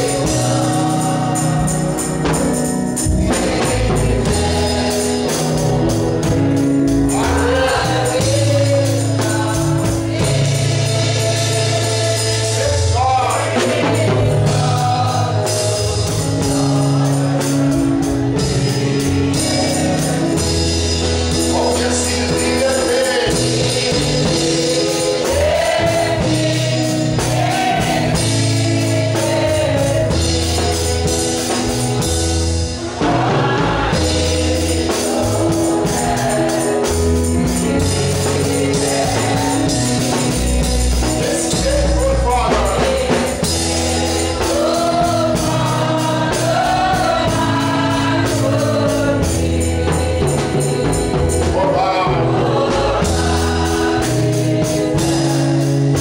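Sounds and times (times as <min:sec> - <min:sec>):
tambourine: 0:00.0 - 0:32.8, 0:33.9 - 0:51.8, 0:52.4 - 0:56.0
congregation singing: 0:00.0 - 0:56.0
man singing over microphone: 0:21.5 - 0:24.1, 0:41.2 - 0:43.0.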